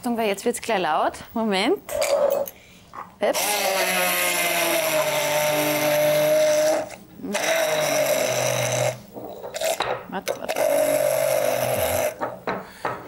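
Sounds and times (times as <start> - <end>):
immersion blender running: 3.3 - 9.0, 10.4 - 12.3.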